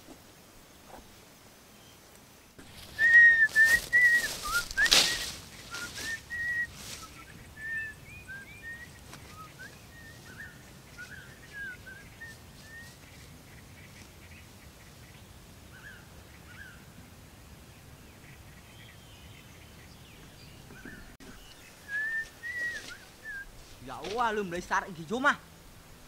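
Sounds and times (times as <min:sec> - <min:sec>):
whistled chirps: 0:02.8 - 0:12.9, 0:20.8 - 0:23.5.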